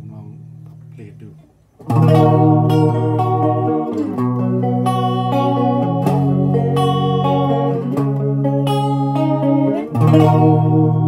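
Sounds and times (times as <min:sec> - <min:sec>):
electric guitar chords with chorus: 0:01.8 - 0:11.0.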